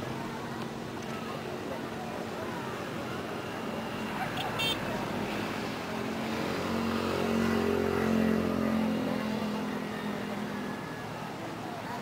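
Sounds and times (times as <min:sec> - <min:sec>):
vehicle engine passing: 0:04.0 - 0:10.9.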